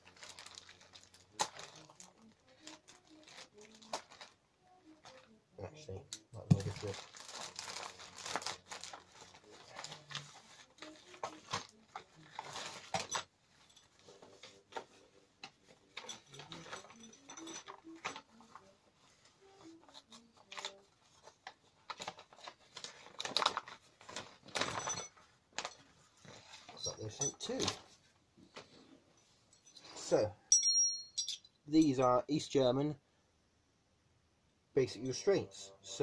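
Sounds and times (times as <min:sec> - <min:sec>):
paper wrapping rustling: 0:00.0 - 0:05.4, 0:06.6 - 0:28.8.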